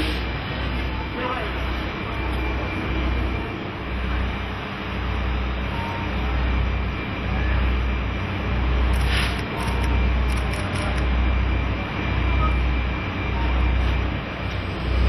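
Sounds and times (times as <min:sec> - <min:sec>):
low rumble and hum: 0:00.0 - 0:15.0
short hiss: 0:09.0 - 0:09.4.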